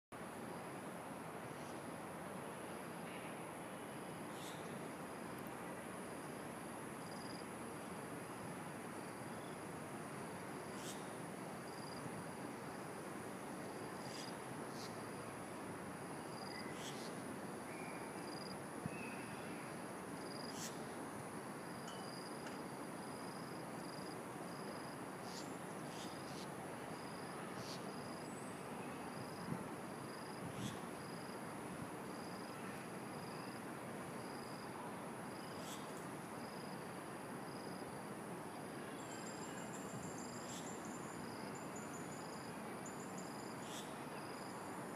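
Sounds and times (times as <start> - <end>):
constant hiss: 0.2 - 44.9
insects chirping: 7.0 - 7.5, 10.5 - 29.5, 30.1 - 31.4, 32.0 - 34.7, 35.3 - 36.9, 39.0 - 44.9.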